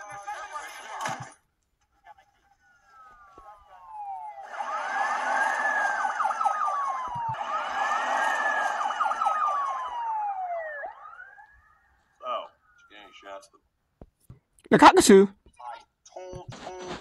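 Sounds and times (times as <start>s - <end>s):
police sirens wailing: 2.0s - 13.6s
cars moving: 2.9s - 11.3s.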